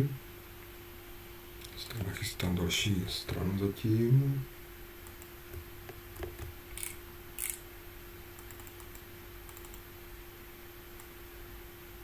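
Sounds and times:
faint steady hum: 0:00.0 - 0:12.0
computer keyboard and mouse clicks: 0:08.4 - 0:09.8.

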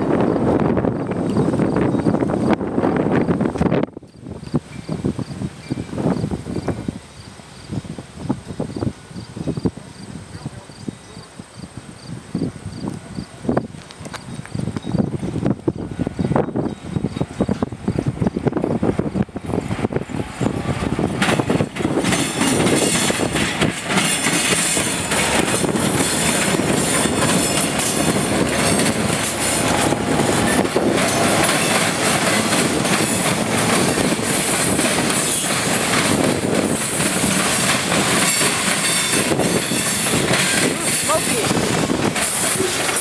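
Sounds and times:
diesel locomotive rumbling: 0:00.0 - 0:43.0
train wheels clattering on rails: 0:13.7 - 0:43.0.

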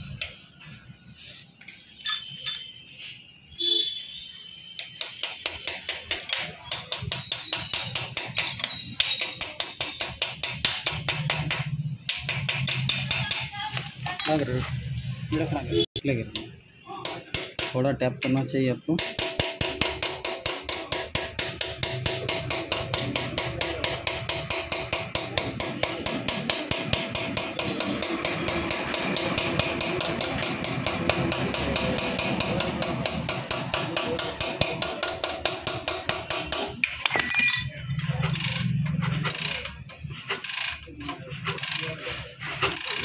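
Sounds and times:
hammer tapping metal: 0:04.8 - 0:13.5, 0:17.0 - 0:17.8, 0:19.0 - 0:42.0, 0:42.6 - 0:43.0.

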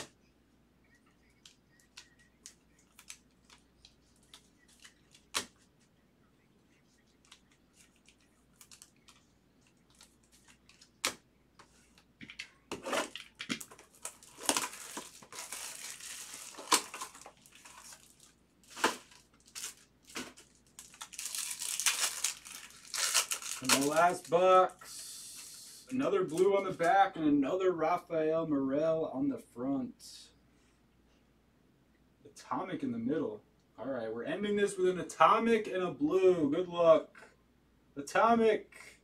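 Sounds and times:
packaging crinkling and tearing: 0:07.3 - 0:09.2, 0:12.7 - 0:24.3.

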